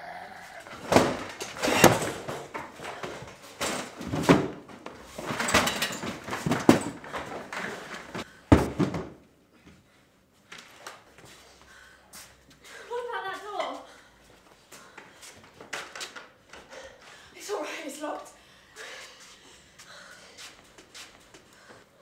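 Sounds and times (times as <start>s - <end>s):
wooden furniture banging: 0.6s - 9.2s
door slamming: 0.7s - 2.5s.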